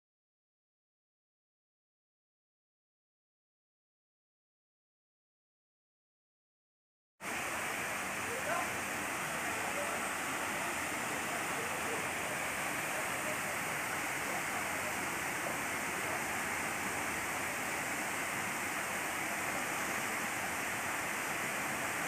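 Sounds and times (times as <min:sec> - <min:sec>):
water rushing over rocks: 0:07.2 - 0:22.0.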